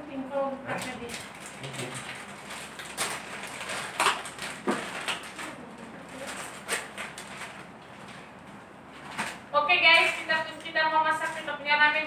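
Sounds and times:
plastic sachet crinkling and tearing: 0:00.7 - 0:08.2.

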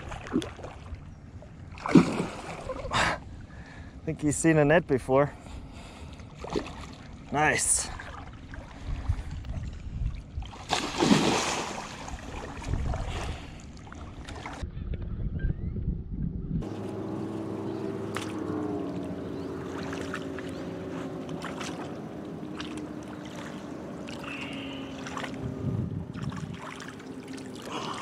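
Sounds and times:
water splashing and sloshing: 0:00.0 - 0:03.6, 0:05.5 - 0:14.6, 0:16.6 - 0:28.0
motorboat engine running: 0:16.6 - 0:28.0.

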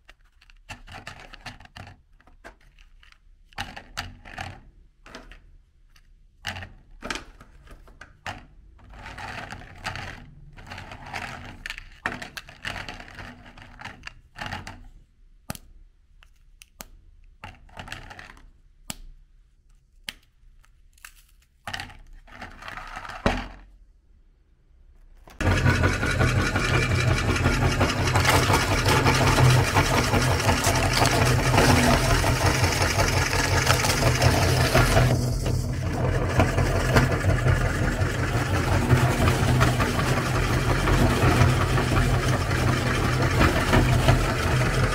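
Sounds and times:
meat grinder motor humming: 0:25.4 - 0:44.9.

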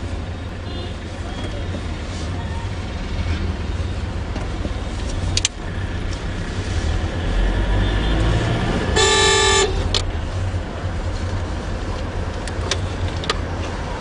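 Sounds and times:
car engine rumble: 0:00.0 - 0:14.0
road noise: 0:00.0 - 0:14.0
car horn honking: 0:08.9 - 0:09.9.

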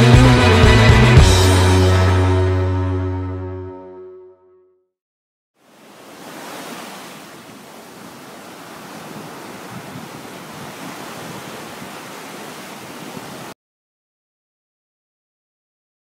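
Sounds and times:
surf breaking on beach: 0:05.7 - 0:13.6
wind on microphone: 0:08.1 - 0:13.5.

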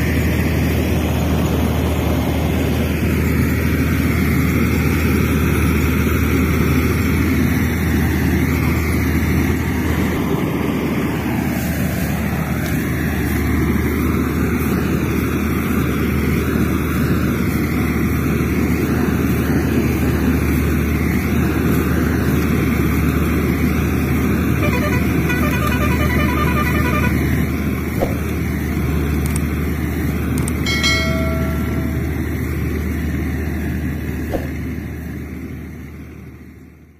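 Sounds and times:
vehicle engine rumble: 0:00.0 - 0:36.9
horn toot: 0:24.6 - 0:28.2.

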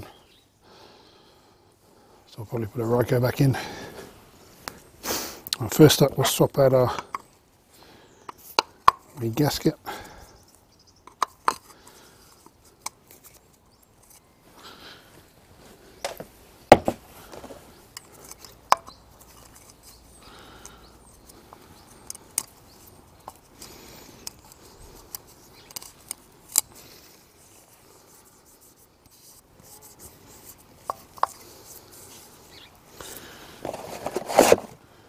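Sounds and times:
gloved hands handling plastic: 0:11.1 - 0:34.8.

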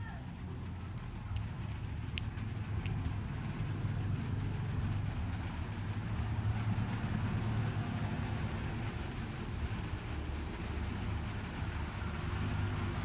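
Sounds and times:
low rumble: 0:00.0 - 0:13.0
faint clicks: 0:01.3 - 0:03.6.

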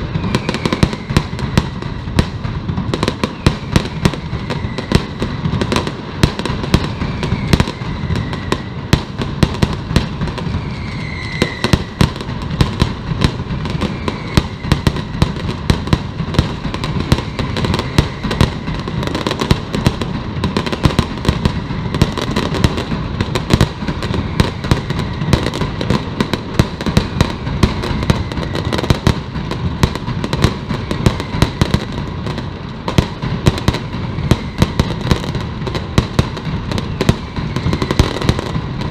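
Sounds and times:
falling whistles: 0:00.0 - 0:02.2, 0:03.1 - 0:05.8, 0:06.4 - 0:09.0, 0:09.8 - 0:12.3, 0:13.2 - 0:15.6, 0:16.8 - 0:29.3, 0:30.4 - 0:32.1, 0:33.5 - 0:35.4, 0:36.7 - 0:38.9
firecrackers banging rapidly: 0:00.0 - 0:38.9.

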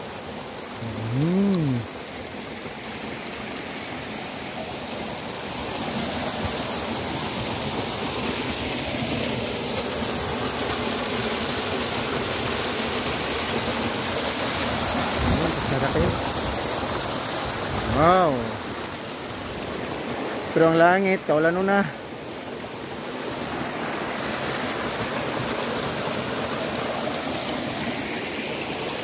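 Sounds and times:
water cascading over stones: 0:00.0 - 0:29.0
short voice: 0:00.8 - 0:01.9.

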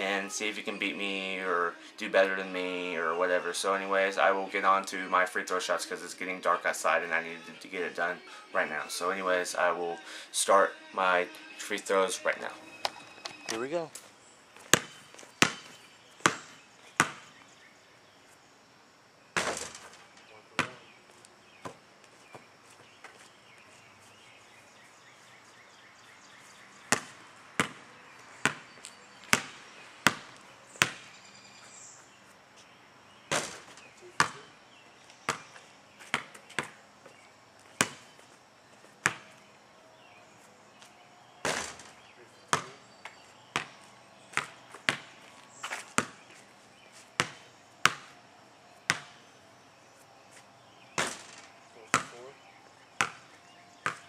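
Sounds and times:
basketball bouncing on asphalt: 0:14.6 - 0:17.4, 0:20.6 - 0:23.3, 0:26.8 - 0:31.2, 0:33.3 - 0:34.6, 0:35.2 - 0:39.5, 0:40.8 - 0:46.5, 0:47.2 - 0:48.2, 0:48.8 - 0:49.3, 0:51.0 - 0:52.2, 0:53.0 - 0:54.0
basketball hitting hoop: 0:14.7 - 0:17.3, 0:19.4 - 0:20.0, 0:26.9 - 0:27.8, 0:29.3 - 0:31.1, 0:33.3 - 0:34.5, 0:37.8 - 0:38.1, 0:41.4 - 0:42.8, 0:47.2 - 0:48.1, 0:51.0 - 0:52.2, 0:53.0 - 0:54.0.

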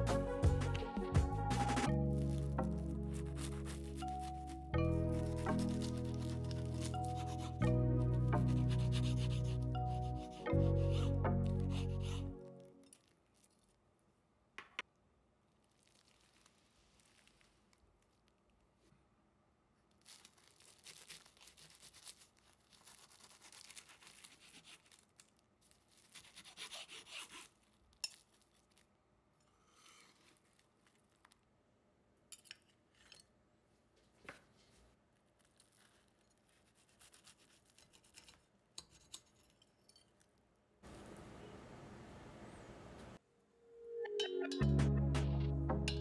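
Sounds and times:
rubbing and scraping on pastry: 0:02.1 - 0:13.8, 0:15.5 - 0:18.9, 0:20.0 - 0:28.9, 0:29.6 - 0:31.5, 0:34.4 - 0:40.2.

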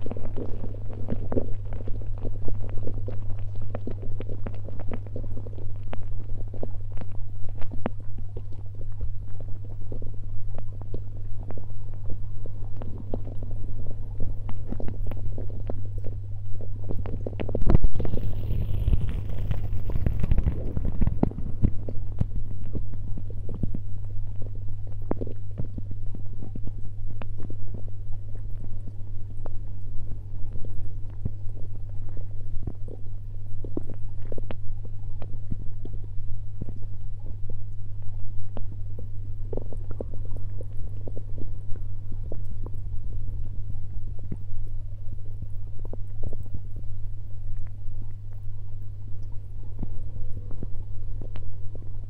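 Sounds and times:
muffled underwater hum: 0:00.0 - 0:52.0
underwater rumbling: 0:00.0 - 0:52.0
underwater clicks and knocks: 0:17.0 - 0:23.9.

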